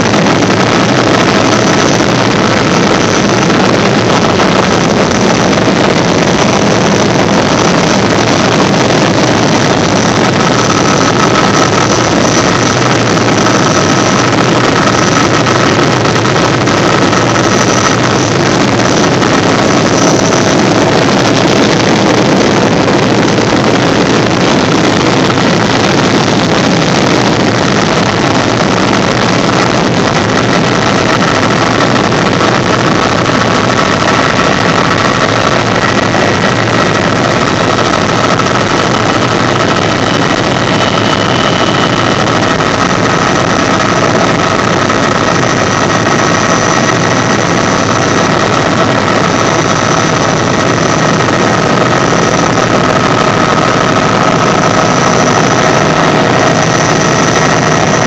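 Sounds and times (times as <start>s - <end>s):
helicopter turbine and rotors: 0.0s - 58.0s
higher whine: 0.0s - 58.0s.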